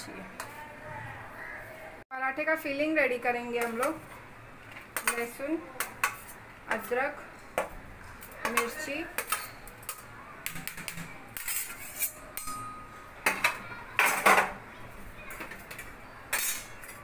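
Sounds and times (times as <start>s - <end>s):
bowl clinking on steel plate: 8.4s - 14.6s, 15.7s - 17.0s
metal spoon scraping steel bowl: 10.7s - 12.8s.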